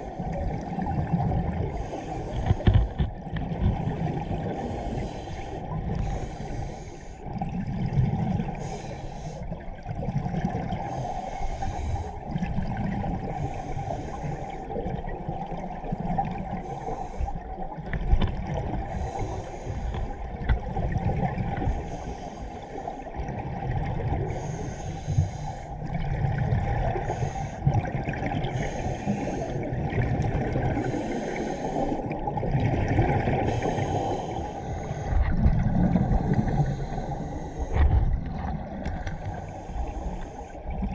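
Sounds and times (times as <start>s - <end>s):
exhaled bubbles rumbling underwater: 0.0s - 40.9s
regulator hiss on inhale: 4.6s - 7.2s, 8.5s - 9.6s, 10.9s - 12.3s, 13.3s - 14.6s, 16.6s - 17.6s, 18.8s - 20.2s, 21.6s - 23.0s, 24.3s - 25.8s, 27.0s - 27.7s, 28.5s - 29.6s, 30.8s - 32.2s, 33.5s - 35.3s, 35.9s - 37.9s, 39.1s - 40.8s.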